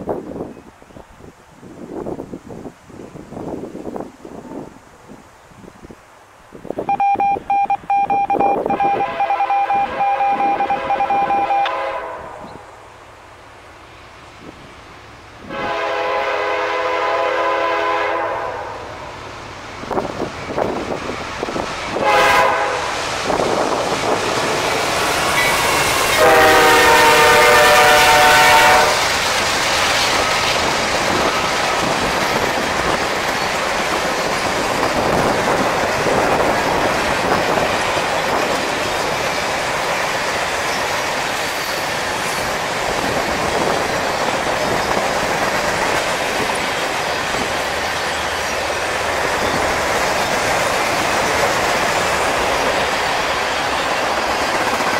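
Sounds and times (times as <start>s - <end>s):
locomotive horn blasts: 8.6s - 12.6s, 15.5s - 18.8s, 22.0s - 23.0s, 26.1s - 29.0s
freight cars rumbling: 18.8s - 54.9s.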